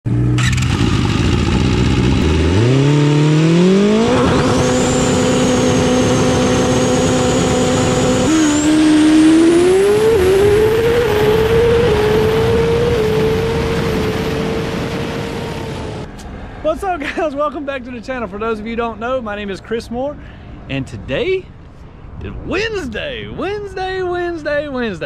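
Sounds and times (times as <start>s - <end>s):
racing engine revving: 0.1s - 16.1s.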